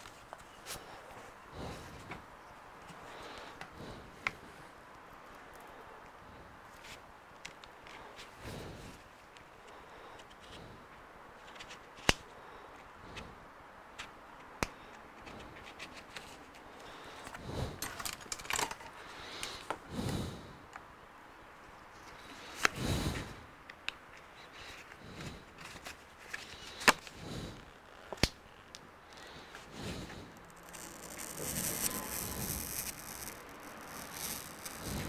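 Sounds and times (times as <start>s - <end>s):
scraping and rustling: 24.7s - 35.0s.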